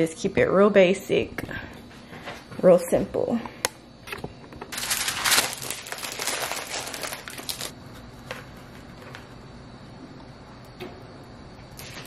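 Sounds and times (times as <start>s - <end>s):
aluminium foil crinkling: 4.7s - 7.8s.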